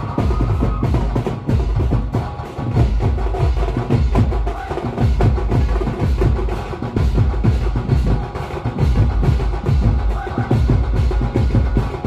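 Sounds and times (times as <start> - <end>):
heavy bass drum beats: 0.0 - 12.0
party band music: 0.0 - 12.0.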